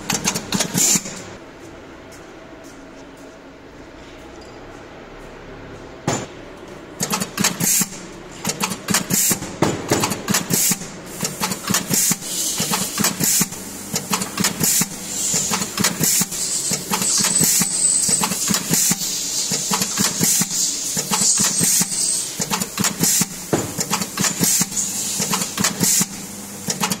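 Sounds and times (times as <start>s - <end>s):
machine clattering clicks and knocks: 0.0s - 1.4s, 5.8s - 27.0s.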